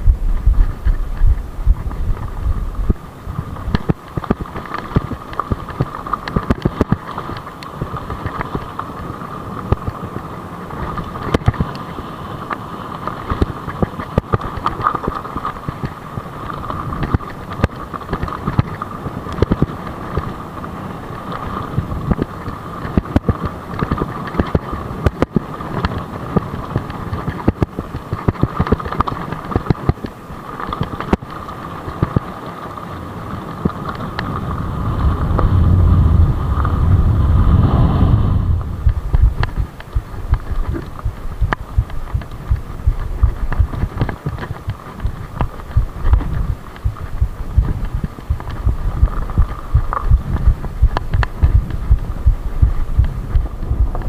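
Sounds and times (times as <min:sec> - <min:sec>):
bike knocking and rattling: 0:00.0 - 0:35.8, 0:38.6 - 0:54.0
bike tyres on stony track: 0:00.0 - 0:54.0
wind rumble on microphone: 0:00.0 - 0:54.0.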